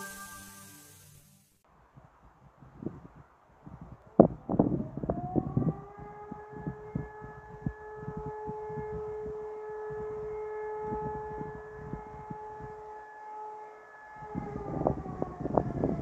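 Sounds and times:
warning siren: 0.0s - 1.1s, 4.1s - 16.0s
wind buffeting microphone: 2.4s - 12.8s, 14.2s - 16.0s.

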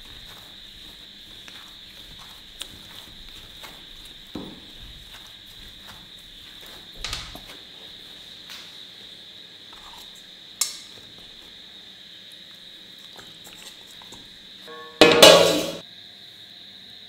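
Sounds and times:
steady high-pitched tone: 14.7s - 15.8s.

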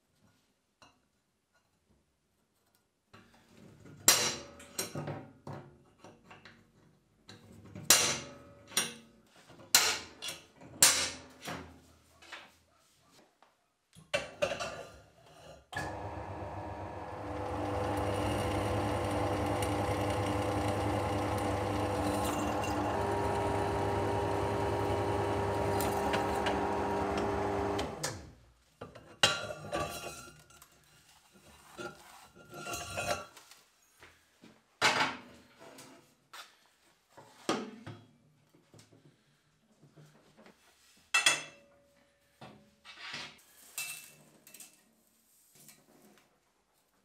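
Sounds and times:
drill press drilling steel: 15.8s - 28.2s.

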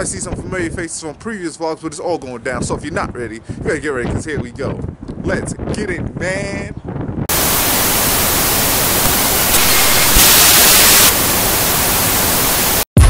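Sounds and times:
static white noise hiss: 7.3s - 12.9s.

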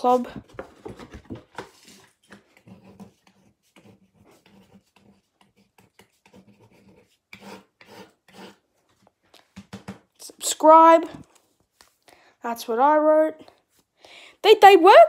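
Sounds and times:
pen scratching on card: 2.5s - 8.6s.

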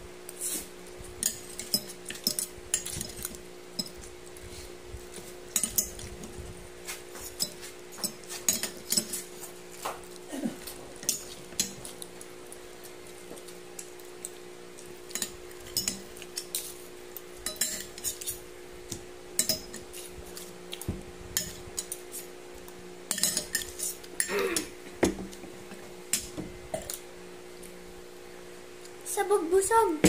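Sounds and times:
fork and spoon clinking on plate: 17.4s - 18.4s, 23.1s - 24.0s.

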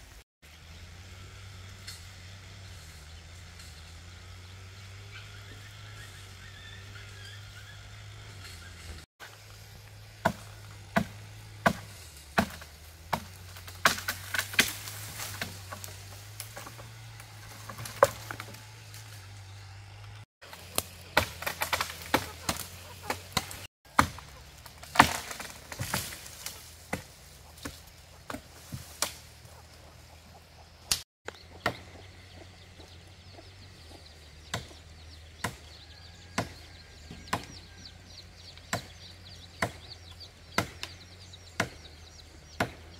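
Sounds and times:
chopping wood: 10.1s - 19.4s, 20.5s - 29.4s, 30.8s - 32.1s, 34.4s - 37.6s, 38.6s - 42.9s.

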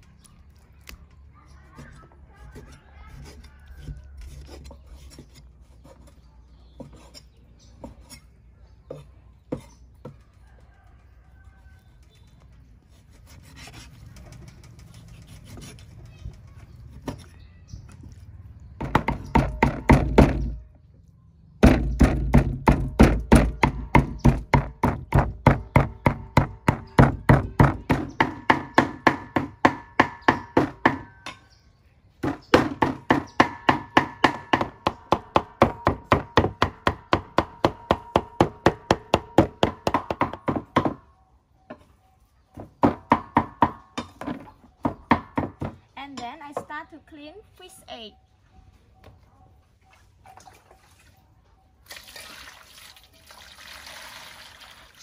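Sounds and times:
cleaver chopping on wooden board: 21.6s - 31.1s, 32.2s - 41.0s.

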